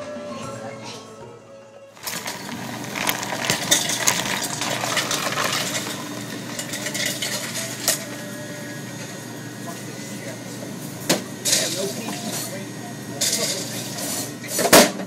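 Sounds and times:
ice rattling into a cup: 0:02.0 - 0:08.2.

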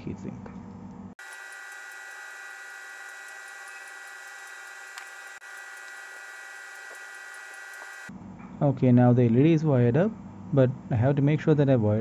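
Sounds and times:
high whining tones: 0:01.2 - 0:08.1
steady hum: 0:01.2 - 0:08.1.

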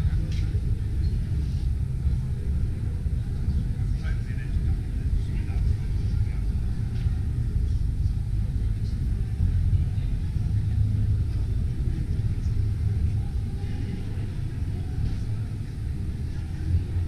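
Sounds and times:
indoor hall background rumble: 0:00.0 - 0:17.0.

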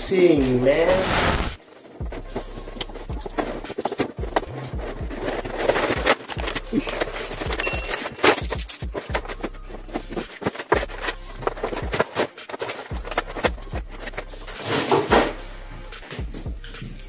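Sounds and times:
plastic bags crinkling: 0:01.0 - 0:14.5.

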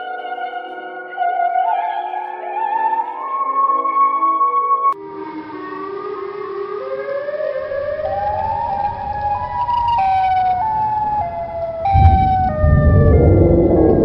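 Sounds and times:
siren wailing: 0:05.4 - 0:14.0
deep rumble: 0:07.8 - 0:14.0.

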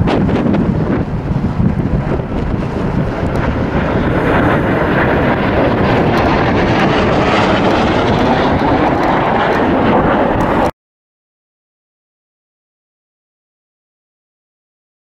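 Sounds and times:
jet flying past: 0:00.0 - 0:10.7.

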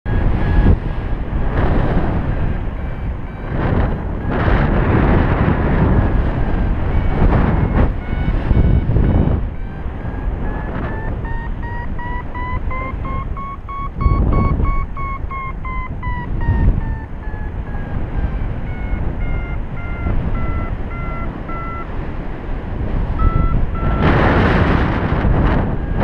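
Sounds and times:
variometer beeping: 0:00.1 - 0:22.2, 0:22.8 - 0:26.0
wind gusting over microphone: 0:00.1 - 0:26.0.

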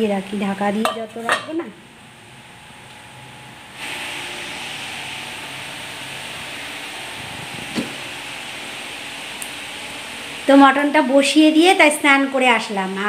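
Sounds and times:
steady rushing hiss: 0:03.1 - 0:13.0.

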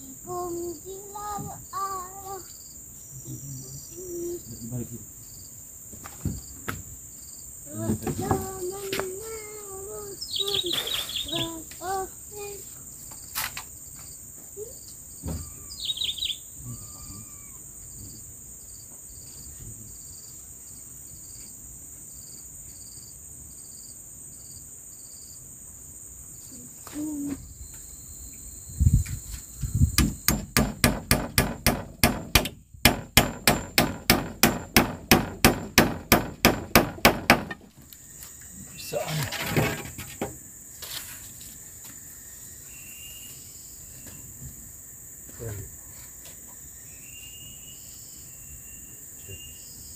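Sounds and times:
insects trilling: 0:00.0 - 0:49.9
hammering on wood: 0:07.8 - 0:08.6, 0:30.0 - 0:37.7
bird chirps: 0:10.1 - 0:11.6, 0:14.8 - 0:18.1, 0:42.3 - 0:44.3, 0:46.5 - 0:49.9.

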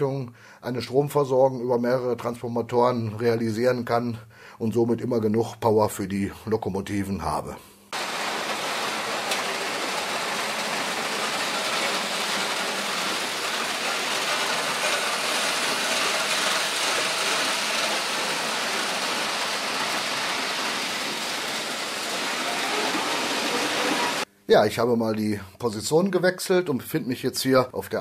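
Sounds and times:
model train running on metal track: 0:08.0 - 0:24.2.

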